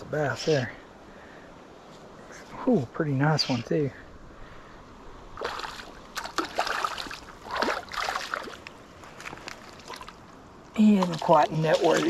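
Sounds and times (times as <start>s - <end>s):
fish splashing at water surface: 5.4s - 8.6s.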